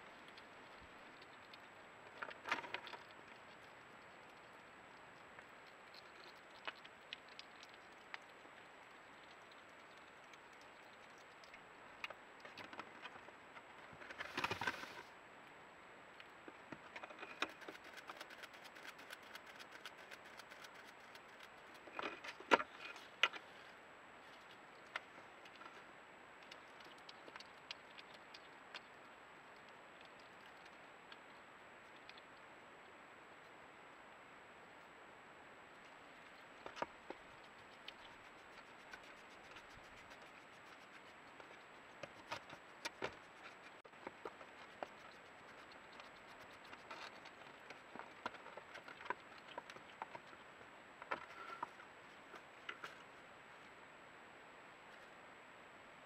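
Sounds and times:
crunching of dry food: 16.8s - 23.5s
hedgehog scratching on wood: 17.2s - 22.4s, 36.6s - 50.4s.

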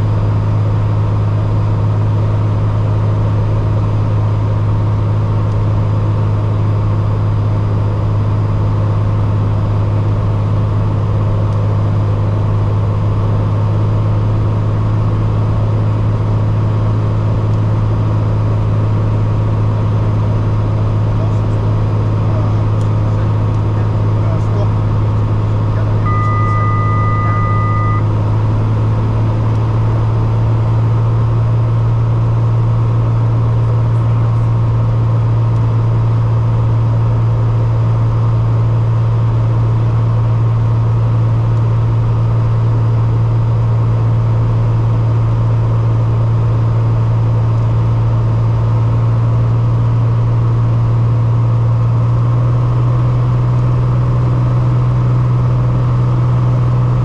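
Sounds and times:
aircraft engines droning: 0.0s - 39.7s
electronic two-note tone: 26.0s - 28.1s.

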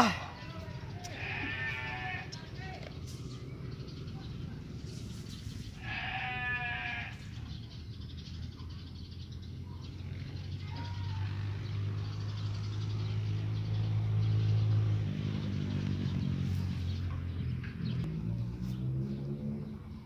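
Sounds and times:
vehicle engine passing: 0.0s - 7.0s, 9.1s - 20.0s.

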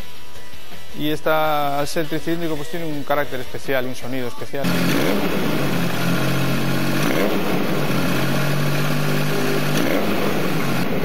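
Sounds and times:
motorcycle engine idling and revving: 4.6s - 11.0s.

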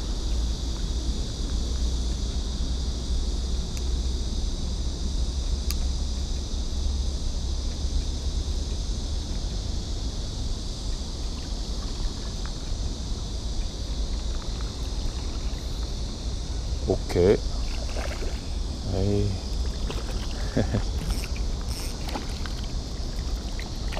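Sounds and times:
high-pitched hiss: 18.2s - 23.9s.

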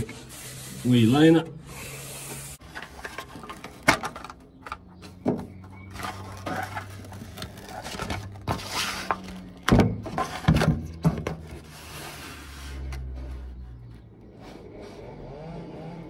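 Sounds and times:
foam sheet rubbing and rustling: 11.6s - 12.9s.

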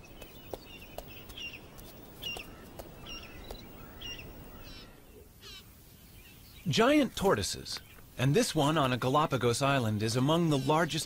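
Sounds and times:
bird chirps: 0.0s - 6.8s.

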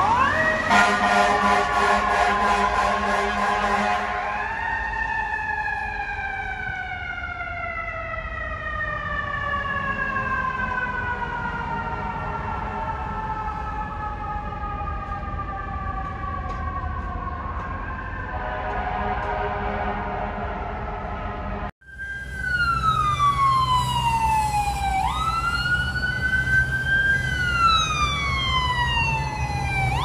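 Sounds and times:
low street traffic rumble: 0.0s - 30.0s
mechanical siren wail: 0.0s - 30.0s
fire truck horn chord: 0.7s - 4.5s, 18.3s - 20.9s.

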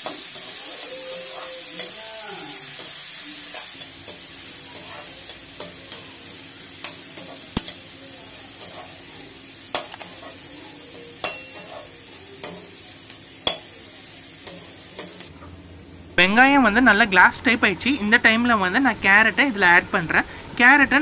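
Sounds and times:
onions sizzling in oil: 0.0s - 21.0s
ladle scraping a pan: 4.7s - 5.2s, 11.4s - 11.9s.

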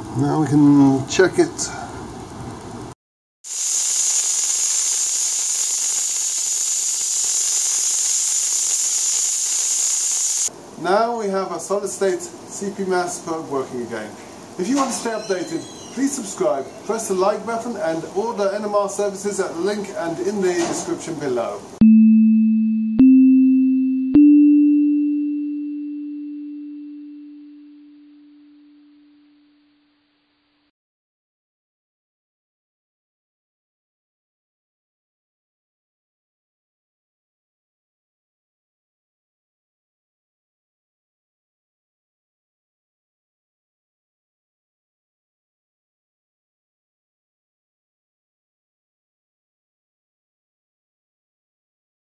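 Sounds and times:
compressed air hissing through pipe: 3.5s - 10.5s
electronic pure tones: 21.8s - 30.4s.

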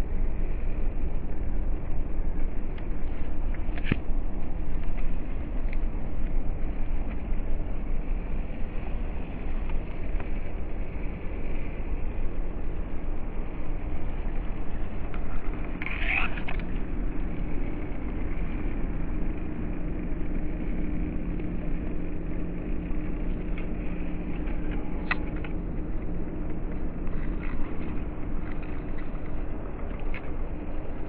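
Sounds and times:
low rumble: 0.0s - 31.0s
small click: 3.6s - 4.0s.

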